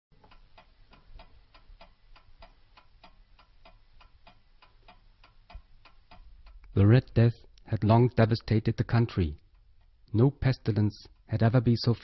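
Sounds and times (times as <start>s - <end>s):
clock ticking: 0.1s - 12.0s.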